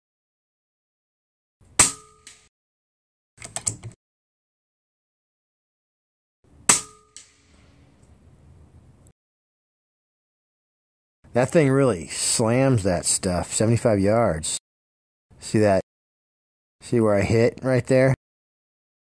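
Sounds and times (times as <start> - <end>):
air rifle shots: 1.8 - 2.4
pellet striking steel target: 1.8 - 2.5, 6.7 - 7.5.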